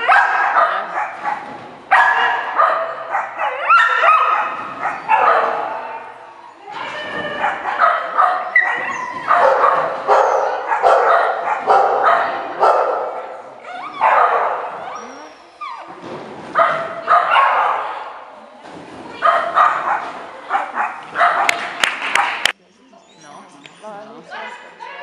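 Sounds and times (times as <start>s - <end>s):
dog barking: 0.0s - 6.2s, 7.3s - 15.0s, 16.6s - 18.2s, 19.2s - 22.5s
dog yipping: 0.0s - 15.9s.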